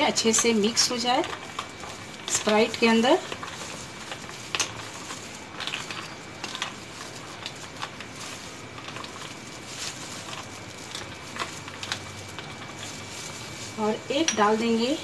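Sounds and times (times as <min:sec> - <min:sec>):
spoon clinking ice in a glass: 0:05.6 - 0:06.7, 0:14.1 - 0:14.7.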